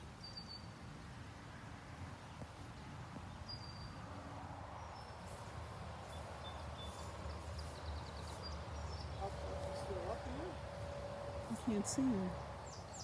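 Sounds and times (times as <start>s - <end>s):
faint bird chirps: 0.2s - 0.7s.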